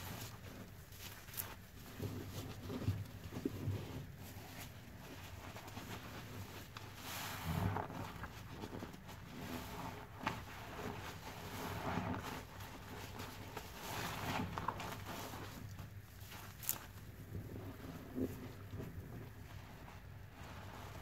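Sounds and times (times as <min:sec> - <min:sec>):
soapy sponge squelching: 0:00.0 - 0:21.0.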